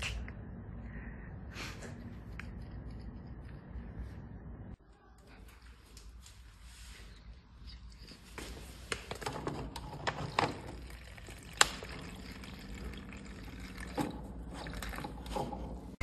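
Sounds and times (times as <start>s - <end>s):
water filling plastic pouch: 10.0s - 15.3s.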